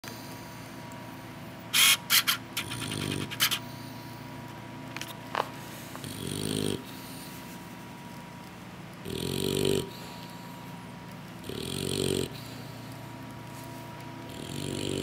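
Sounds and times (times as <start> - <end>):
short sharp scratchy noises: 1.8 - 3.6
bulldog snoring: 6.0 - 6.9, 9.0 - 9.9, 11.4 - 12.4, 14.3 - 15.0.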